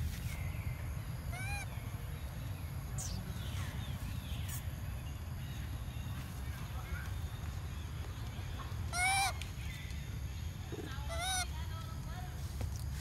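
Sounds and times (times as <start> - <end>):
high animal calls: 1.3 - 1.7, 8.9 - 9.4, 10.7 - 11.5.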